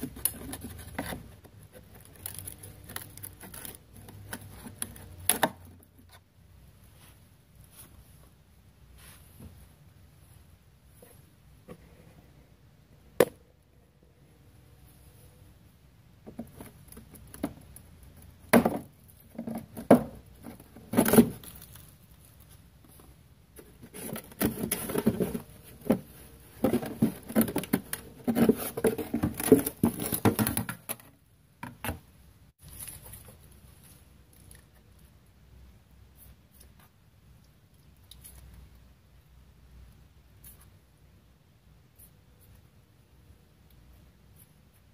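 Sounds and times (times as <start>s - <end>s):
scratchy rustling and scraping: 0.0s - 5.3s, 19.2s - 30.9s.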